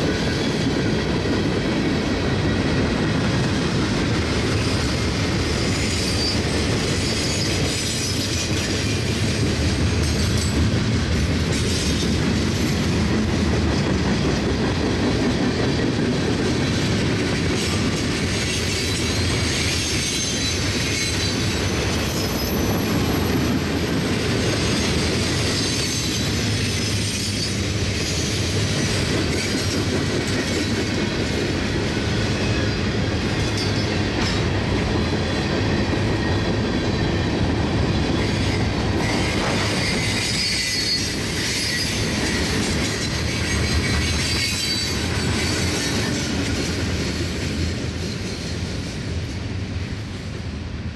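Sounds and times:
train wheels rumbling on rails: 0.0 - 50.9
thin wheel squeals: 19.4 - 22.8, 39.1 - 45.9.

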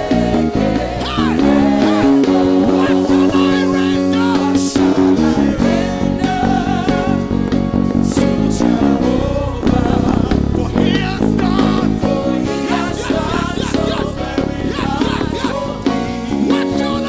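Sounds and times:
gospel band playing: 0.0 - 17.0
people singing: 0.0 - 17.0.

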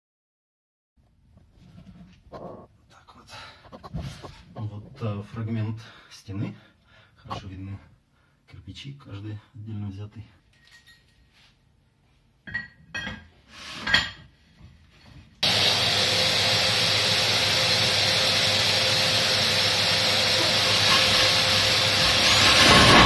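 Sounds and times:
metal clinks and knocks: 10.5 - 11.3
steady machine noise: 15.4 - 23.0.

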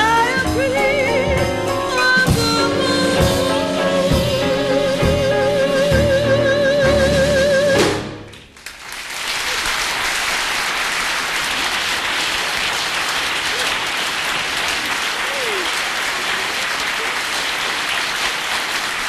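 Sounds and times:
person singing with vibrato: 0.0 - 8.0
backing music: 0.0 - 8.4
audience applauding: 8.3 - 19.0.

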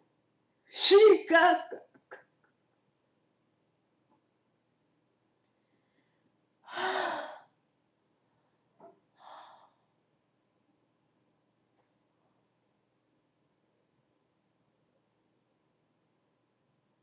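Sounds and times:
person sighing loudly: 6.6 - 7.6.

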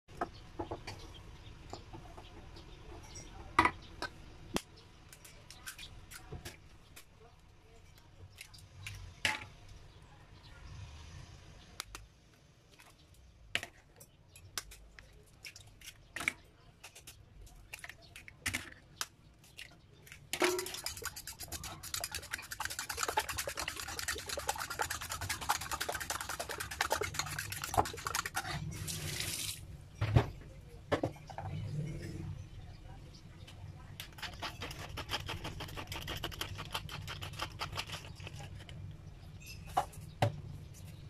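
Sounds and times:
spoon beating eggs in bowl: 13.6 - 29.2, 34.0 - 38.8.

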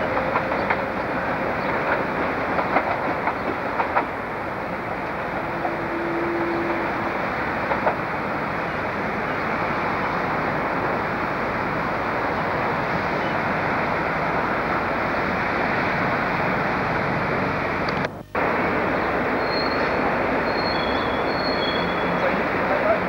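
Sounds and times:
train rumbling on tracks: 0.0 - 23.0.

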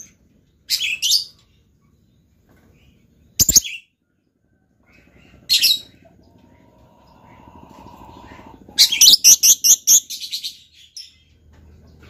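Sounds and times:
bird chirping calls: 2.8 - 4.0, 4.8 - 12.0.

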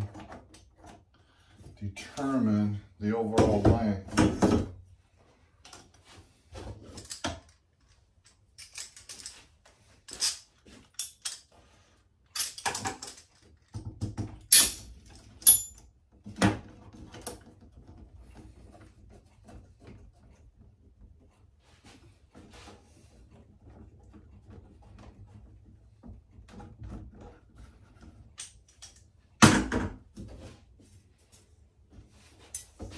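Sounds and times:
metallic ring: 15.4 - 15.8.

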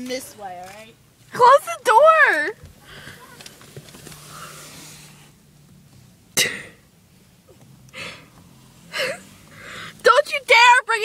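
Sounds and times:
cough-like burst: 6.4 - 6.8
breathy burst: 7.9 - 10.0.

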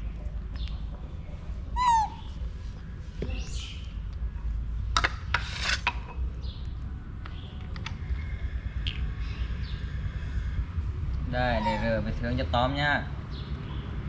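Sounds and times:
monkey squealing: 1.8 - 2.3, 11.4 - 12.2
sharp scrapes: 5.1 - 6.2.

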